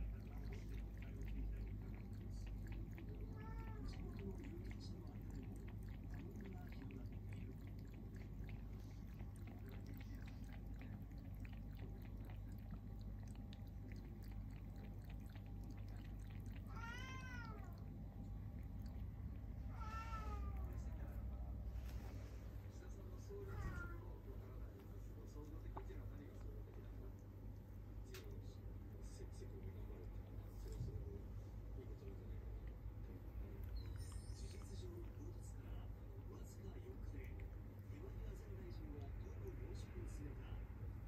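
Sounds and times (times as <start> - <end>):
cat lapping water from bowl: 0.0 - 41.0
cat meowing: 3.2 - 4.2, 16.5 - 17.8, 19.7 - 20.7, 23.5 - 24.0.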